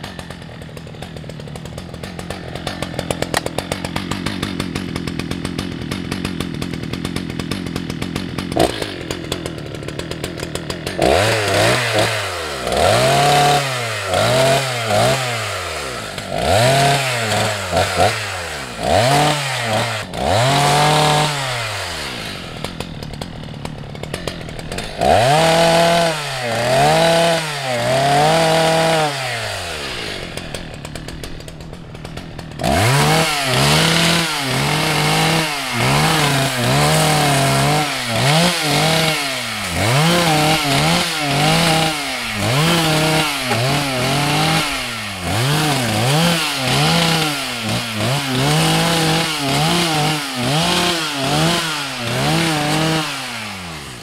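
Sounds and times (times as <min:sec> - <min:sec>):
chainsaw idling: 0:00.0 - 0:54.0
chainsaw revving: 0:00.0 - 0:54.0.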